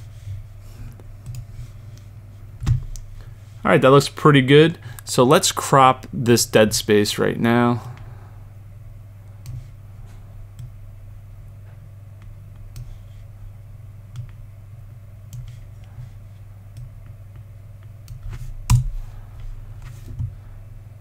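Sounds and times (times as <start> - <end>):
steady low hum: 0.0 - 21.0
computer mouse clicks: 1.2 - 2.1, 12.7 - 13.0.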